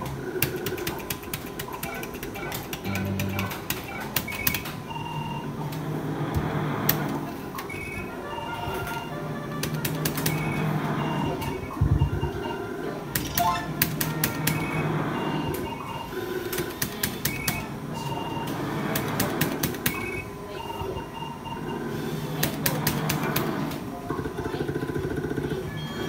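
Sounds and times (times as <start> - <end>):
background music: 2.8 - 3.7, 7.8 - 11.3, 12.5 - 15.5
short electronic beeps: 13.3 - 13.8.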